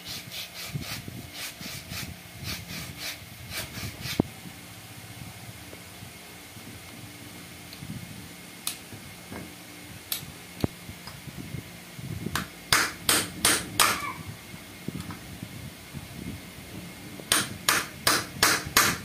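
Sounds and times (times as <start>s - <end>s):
hammer striking metal punch: 12.4s - 14.1s, 17.3s - 19.0s.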